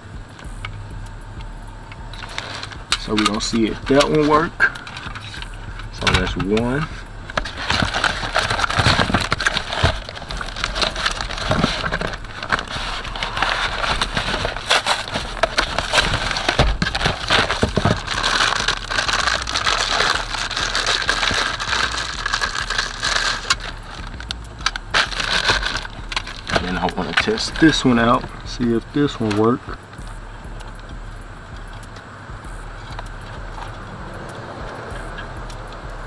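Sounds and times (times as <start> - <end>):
plastic wrap and cardboard crinkling: 2.2 - 29.6.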